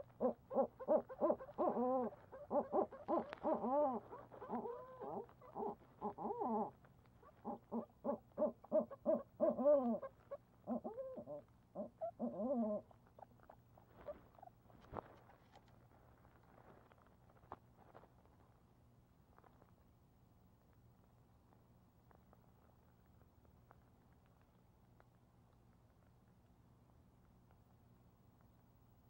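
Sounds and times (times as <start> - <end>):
owls hooting and crying: 0.0 - 14.1.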